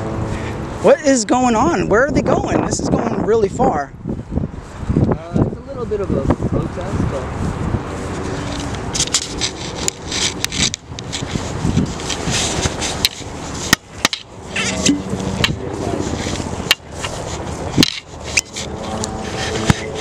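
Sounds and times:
camera handling noise: 8.2s - 13.3s, 16.3s - 20.0s.

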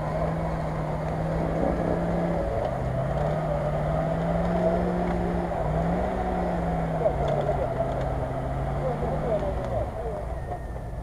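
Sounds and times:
engine working under load: 0.0s - 11.0s.

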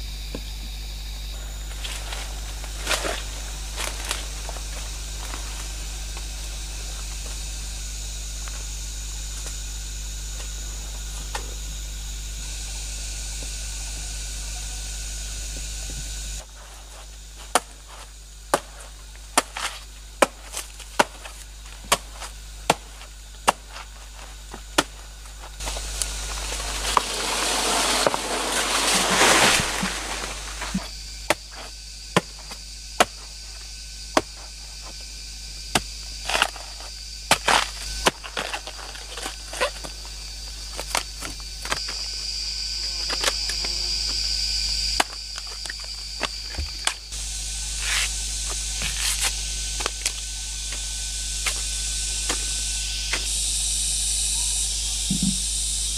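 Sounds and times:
forest background: 0.0s - 55.9s
loud rustling: 16.5s - 31.7s
machete chopping plant stem: 17.4s - 25.0s, 25.6s - 33.3s, 35.8s - 39.8s.

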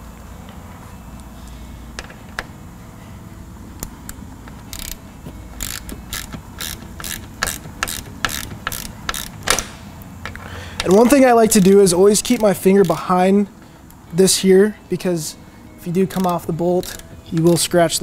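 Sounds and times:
hand ratchet clicking: 3.8s - 13.1s, 16.0s - 17.6s.

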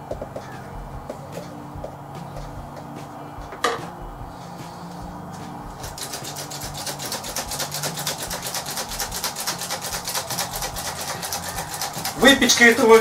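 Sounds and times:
flour sifter rasping: 4.3s - 13.0s.

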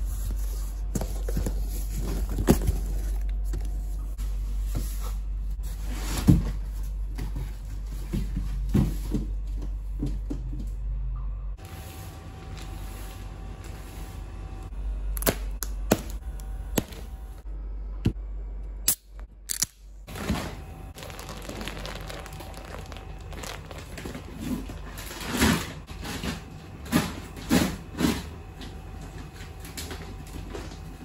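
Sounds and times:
plastic wrapping crinkling: 21.0s - 25.7s.

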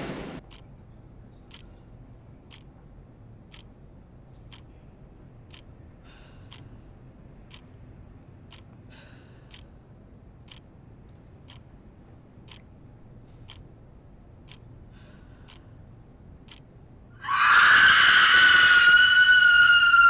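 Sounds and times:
faint ticking: 0.4s - 17.1s
woman screaming: 17.2s - 20.0s.

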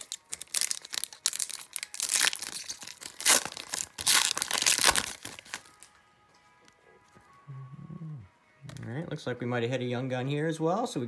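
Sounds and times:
foil wrapper tearing and crinkling: 0.0s - 5.9s.

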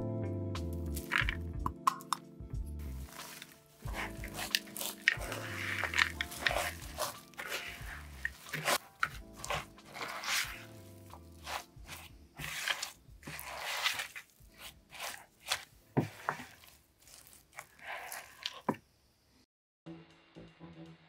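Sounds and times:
spatula scraping cookie dough: 1.0s - 1.4s, 2.9s - 18.8s.

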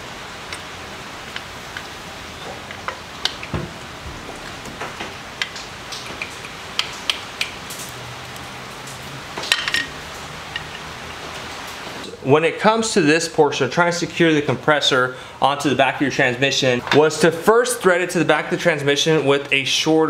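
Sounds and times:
steady hiss: 0.0s - 20.0s
metallic clicks and taps: 5.4s - 8.0s.

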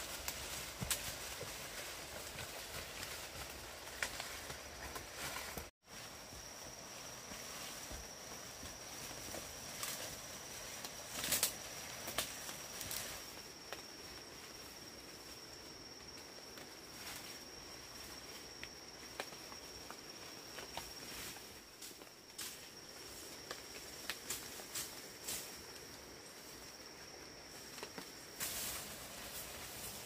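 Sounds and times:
rustles and clicks: 0.0s - 14.8s.

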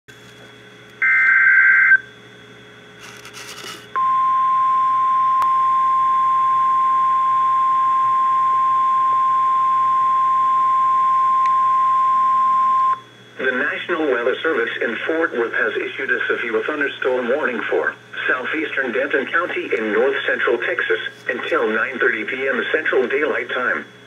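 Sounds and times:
steady warning alarm tone: 1.0s - 2.1s, 4.0s - 13.1s.

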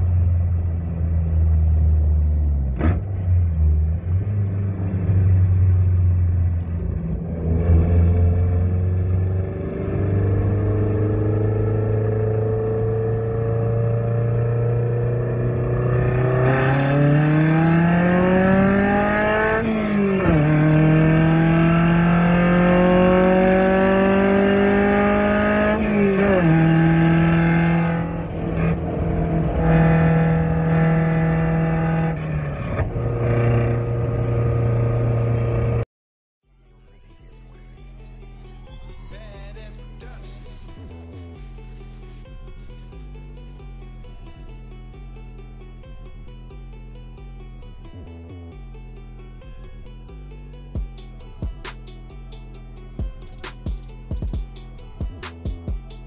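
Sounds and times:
car engine revving: 0.0s - 35.8s.

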